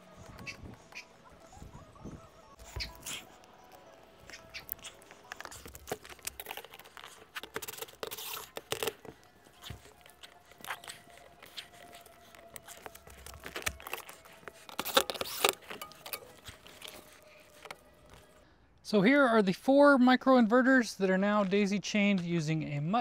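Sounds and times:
cable scraping on shingles: 2.6 - 18.4
plastic connectors clicking: 2.8 - 18.4.

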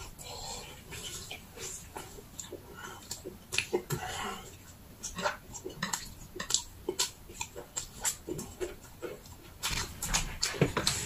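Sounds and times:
man chewing with lip-smacking: 0.0 - 11.0.

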